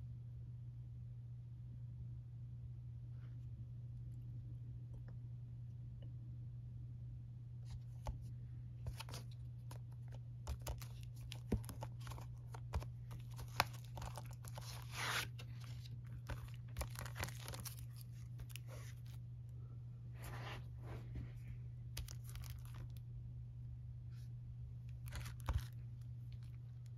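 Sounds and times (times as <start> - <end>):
steady low hum: 0.0 - 26.9
plastic wrap crinkling: 10.5 - 19.2, 22.0 - 23.0, 25.0 - 26.9
plastic rustle: 10.6 - 19.2.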